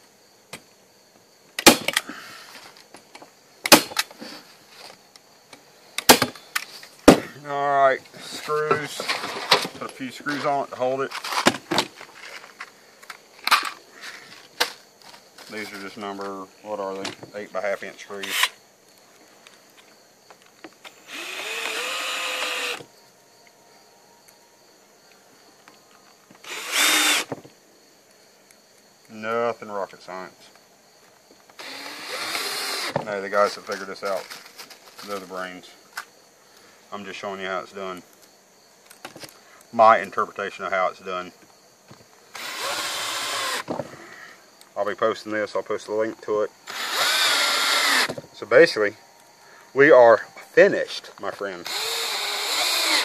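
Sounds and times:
cordless drill driving screws: 21.0s - 22.8s, 26.4s - 27.3s, 31.6s - 33.0s, 42.3s - 43.7s, 46.6s - 48.2s, 51.6s - 53.0s.

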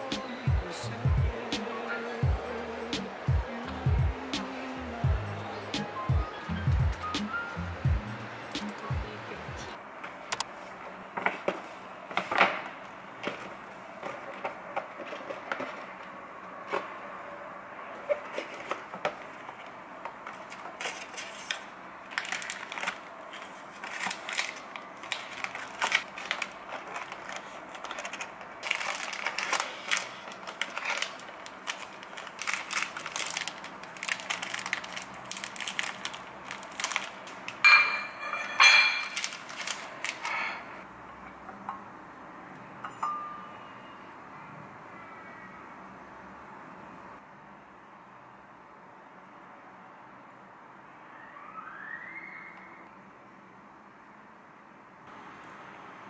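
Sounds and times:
plastic wrapper crinkling: 18.1s - 40.8s
sharp ringing clinks: 42.8s - 43.7s.

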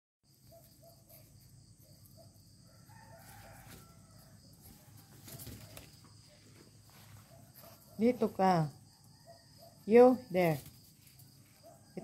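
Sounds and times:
faint rooster crowing: 2.4s - 8.1s, 8.7s - 10.0s.

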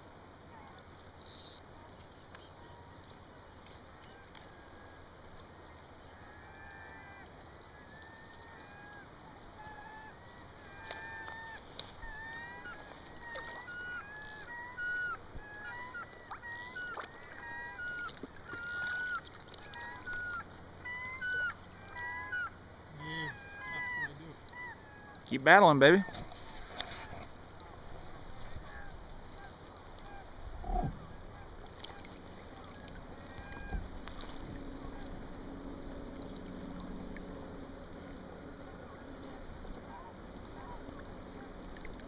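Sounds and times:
geese honking: 6.1s - 30.4s, 31.0s - 35.4s.

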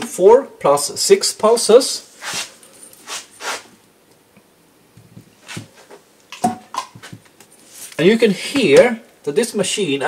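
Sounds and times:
soft scraping and rustling: 2.0s - 3.8s, 7.0s - 8.2s.

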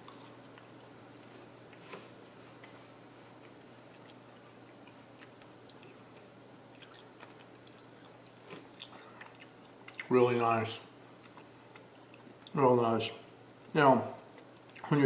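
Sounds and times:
faint chewing crunches: 0.0s - 10.1s, 11.1s - 12.6s, 13.6s - 15.0s.

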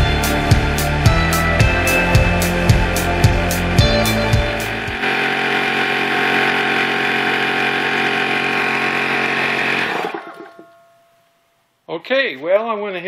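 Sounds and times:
background music with drum beat: 0.0s - 5.0s
air compressor running: 1.8s - 10.6s.

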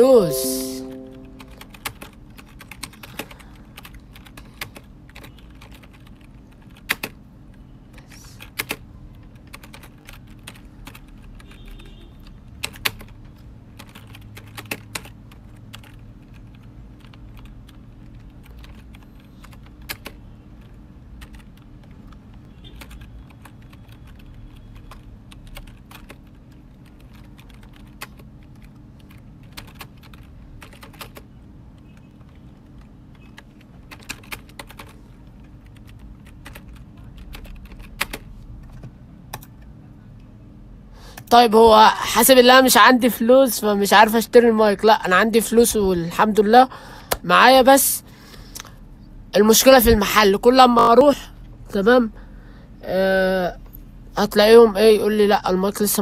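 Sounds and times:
computer keyboard typing: 0.0s - 7.2s, 8.4s - 11.6s, 12.2s - 39.7s.

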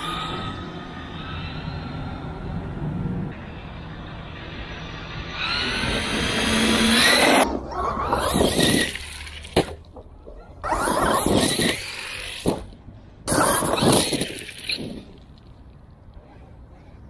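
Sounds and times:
toy car electric motor whining: 5.2s - 9.6s, 10.6s - 12.6s, 13.3s - 15.2s.

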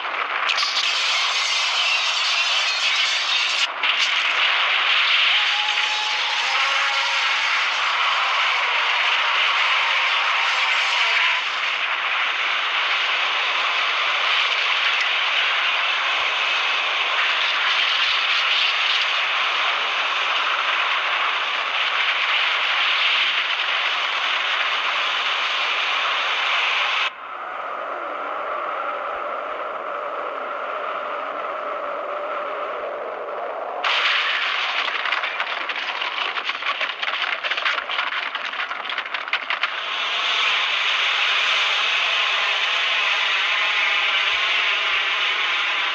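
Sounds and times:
dense crackling: 33.8s - 39.8s.

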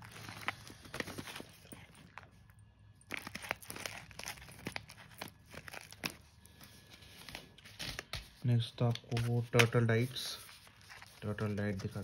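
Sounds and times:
plastic packet crinkling: 0.0s - 8.1s.

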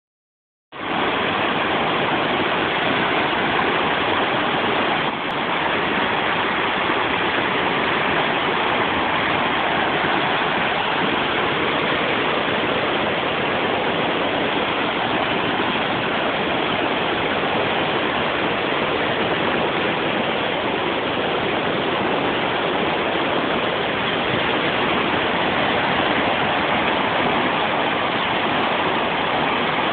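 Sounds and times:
floodwater rushing over rocks: 0.8s - 29.9s.

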